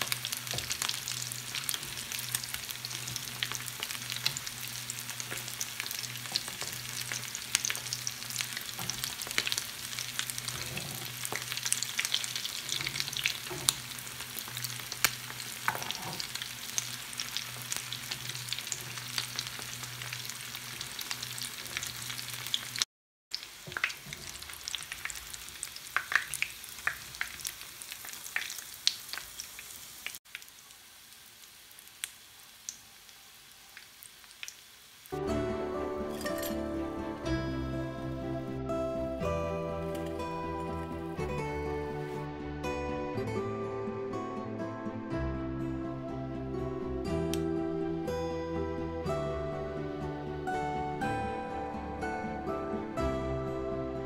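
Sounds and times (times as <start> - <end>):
oil sizzling with crackles and pops: 0.0 - 35.3, 36.0 - 37.2
fork prodding in pan: 15.6 - 16.5, 36.1 - 36.6.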